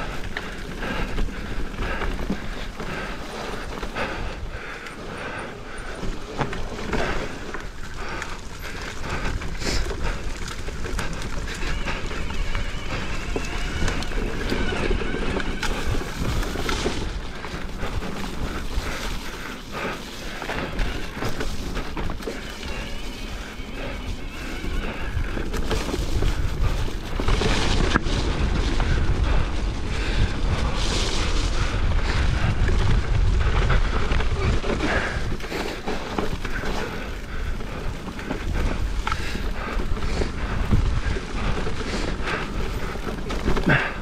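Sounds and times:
bike rattling and knocking: 0.0 - 44.0
wind rumbling on microphone: 0.0 - 44.0.

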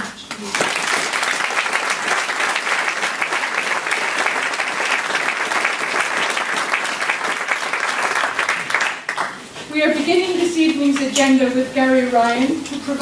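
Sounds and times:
audience applauding: 0.4 - 9.6.

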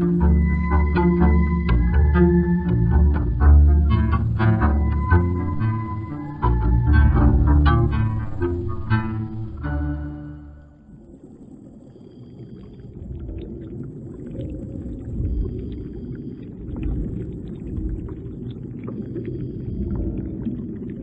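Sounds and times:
underwater rumble: 0.0 - 21.0
faint crackling clicks: 11.0 - 21.0.

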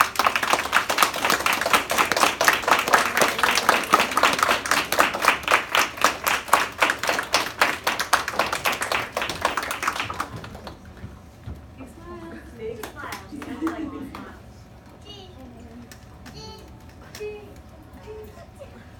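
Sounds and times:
children clapping: 0.0 - 11.0, 12.8 - 14.4.

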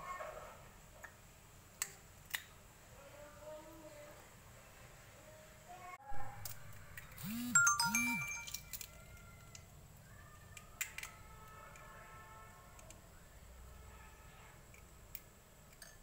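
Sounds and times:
electronic jingle with swoops: 7.2 - 8.7
ringing chime: 7.2 - 8.8.

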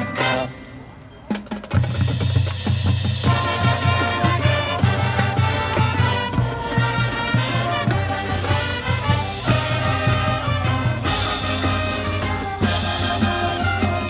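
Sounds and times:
marching band playing: 0.0 - 14.0
steady drum beat: 1.3 - 14.0.

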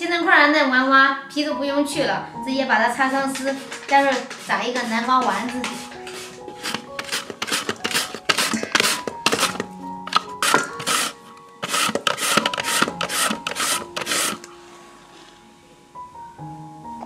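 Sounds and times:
pumpkin grating on hand grater: 3.3 - 5.0, 5.6 - 14.4.

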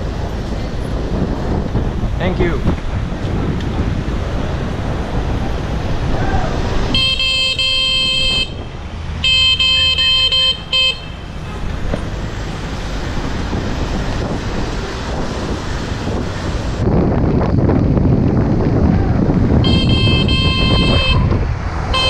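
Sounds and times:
traffic and road noise: 0.0 - 22.0
bicycle horn blasting: 7.0 - 11.3, 19.6 - 22.0.

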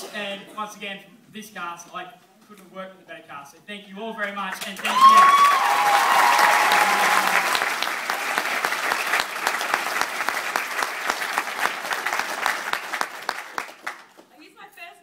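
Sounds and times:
audience applauding: 4.8 - 14.3.

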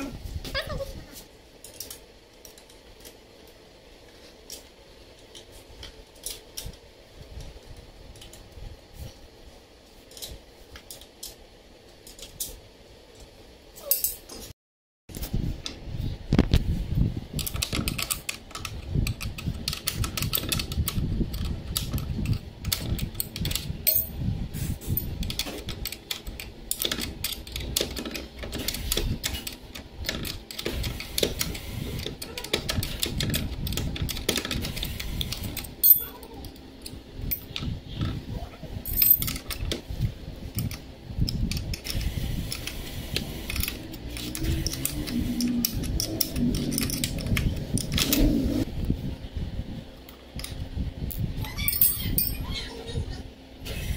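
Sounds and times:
spanner clinking against bolts: 17.4 - 24.2.

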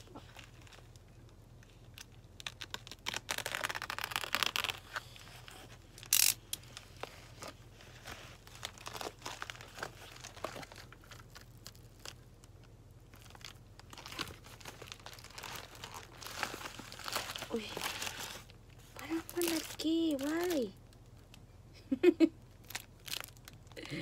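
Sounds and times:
paper crinkling: 0.0 - 21.4, 22.6 - 23.7
envelope tearing: 1.9 - 12.2, 13.2 - 20.6.

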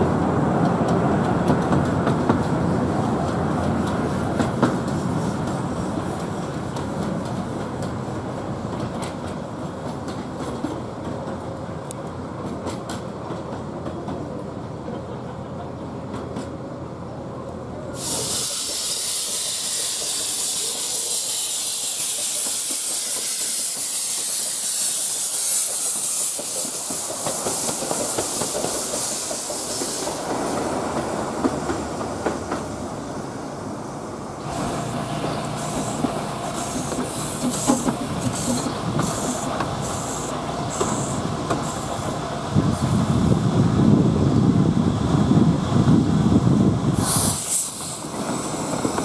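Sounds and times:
short steam puffs: 17.9 - 30.7, 34.4 - 43.1, 46.9 - 49.0
locomotive steam hiss: 17.9 - 43.6, 46.8 - 49.0.

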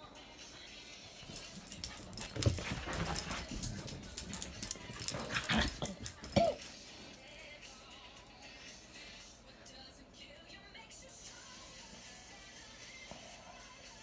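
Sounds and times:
dogs scuffling: 1.3 - 6.8.

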